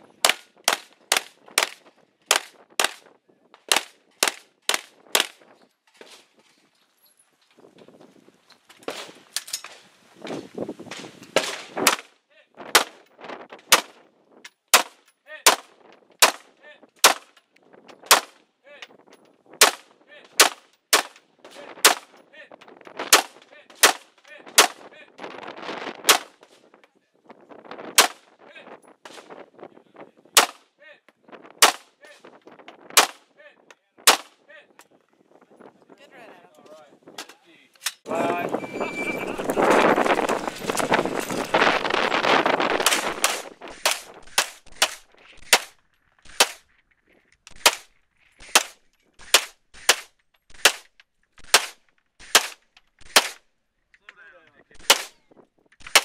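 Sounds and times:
gunshots: 0.2s - 3.0s, 3.7s - 5.4s, 10.9s - 12.1s, 12.7s - 13.0s, 14.7s - 16.4s, 18.1s - 18.4s, 20.4s - 21.2s, 21.8s - 22.1s, 23.1s - 24.8s, 26.1s - 26.4s, 27.9s - 28.2s, 31.6s - 31.9s, 33.0s - 33.2s, 34.0s - 34.4s, 42.8s - 46.6s, 47.6s - 53.4s, 54.8s - 55.2s, 55.8s - 56.0s.

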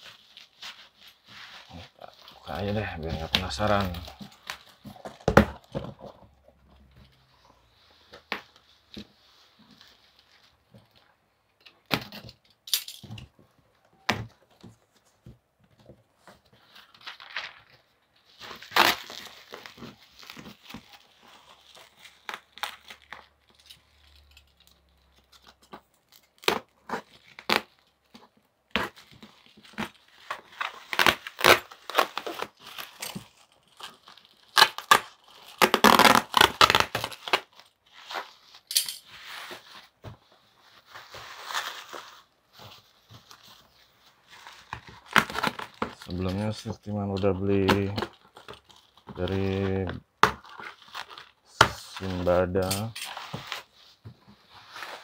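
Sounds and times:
plastic bag and bubble wrap crinkling: 0.0s - 11.4s, 16.1s - 55.0s.

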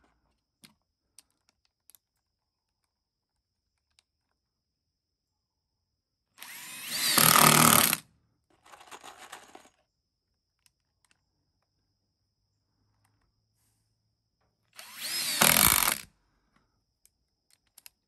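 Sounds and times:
power drill running: 6.4s - 8.0s, 14.8s - 16.1s.

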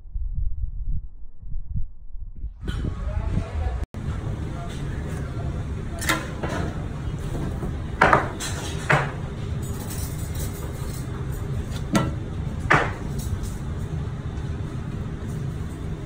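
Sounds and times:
extractor hood humming: 4.0s - 16.0s.

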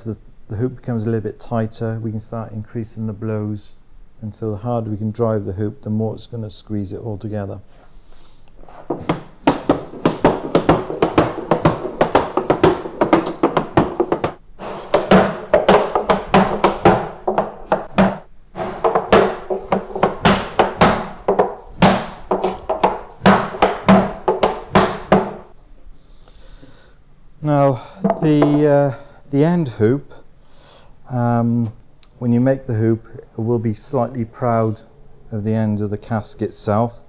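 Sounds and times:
hammer striking hoop driver: 9.1s - 25.4s, 28.0s - 28.8s.

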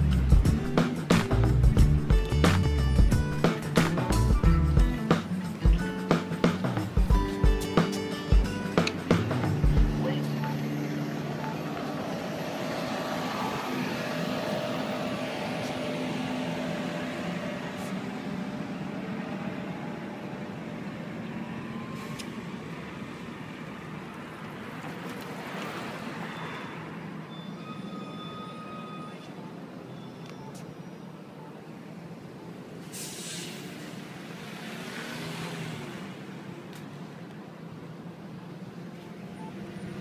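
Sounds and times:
bus engine pulling away: 0.0s - 40.0s
street traffic noise: 0.0s - 40.0s
faint high tones: 26.3s - 32.6s.

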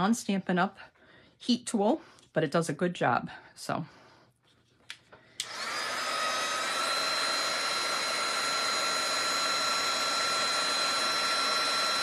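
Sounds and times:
heat tool fan whine: 5.4s - 12.0s.

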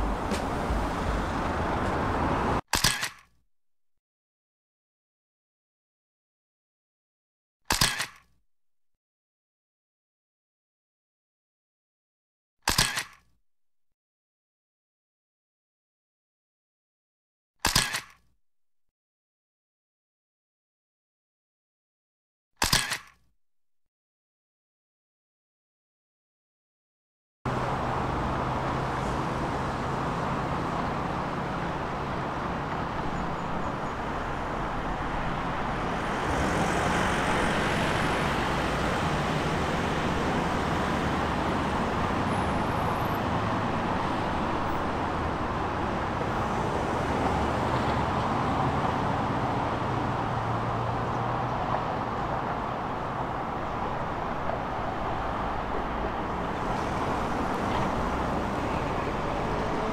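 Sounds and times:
road traffic passing: 0.0s - 2.6s, 27.5s - 59.9s.

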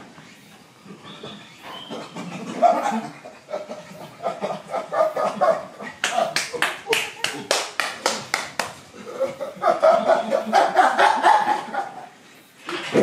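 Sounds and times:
quick claps: 6.0s - 8.8s
breathy pulsing laughter: 9.0s - 12.1s.

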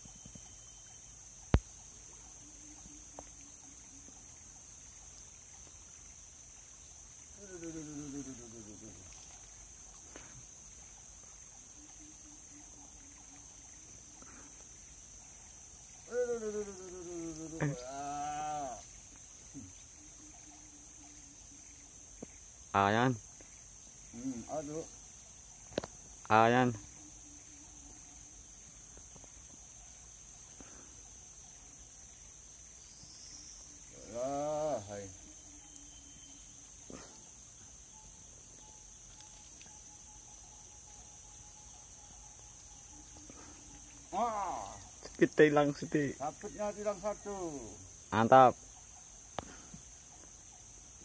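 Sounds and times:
faint ticks: 0.0s - 17.8s, 18.5s - 22.5s, 25.1s - 26.4s, 34.6s - 45.4s, 48.7s - 51.0s
insects buzzing: 0.0s - 51.0s
long drawn-out call: 7.3s - 9.2s, 15.8s - 21.9s, 33.6s - 37.4s, 39.6s - 48.5s.

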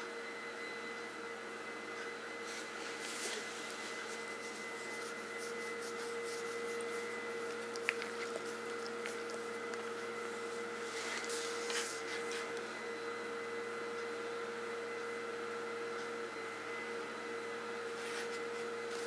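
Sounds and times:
appliance hum with whine: 0.0s - 19.0s
hand stroking dog rustles: 2.4s - 12.5s.

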